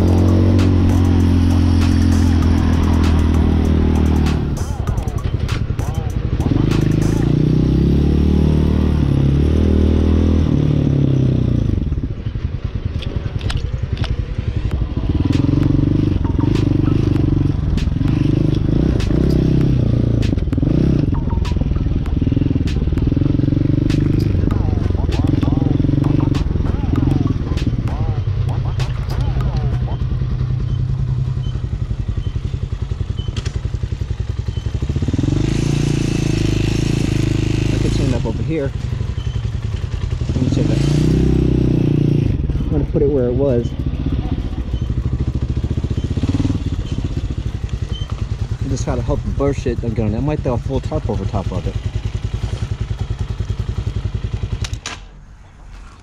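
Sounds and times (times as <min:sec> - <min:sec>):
motorcycle engine running: 0:00.0 - 0:56.0
sharp engine clacks: 0:00.1 - 0:07.3, 0:23.8 - 0:31.6.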